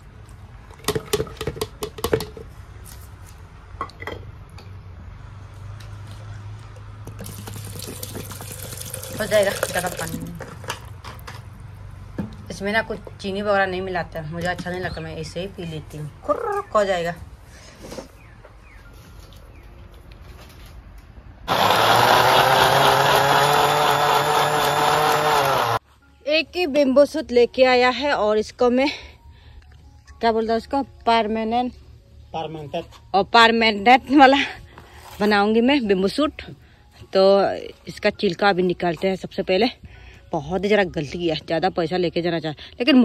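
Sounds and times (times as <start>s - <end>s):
blender motor whine: 21.5s - 25.8s.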